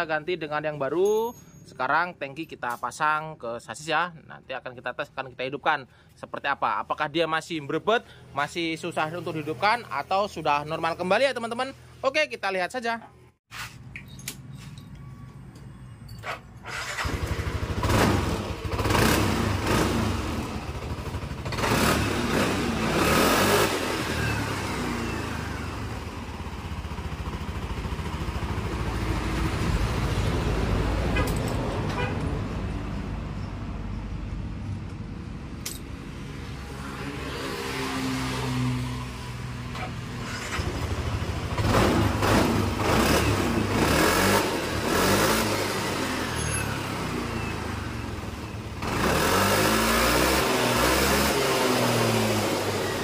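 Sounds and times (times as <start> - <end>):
scooter engine starting and revving: 16.6 - 30.9, 36.9 - 53.0.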